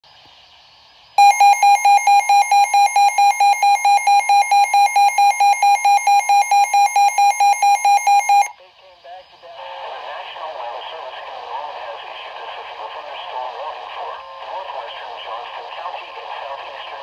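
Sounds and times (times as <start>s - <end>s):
faint radio hiss: 0.1s - 6.0s, 7.8s - 17.0s
rapid electronic alarm beeping: 1.2s - 8.5s.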